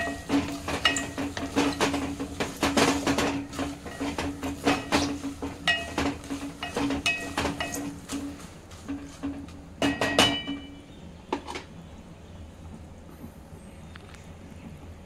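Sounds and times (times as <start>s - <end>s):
wooden spoon scraping a pot: 0.0s - 9.6s.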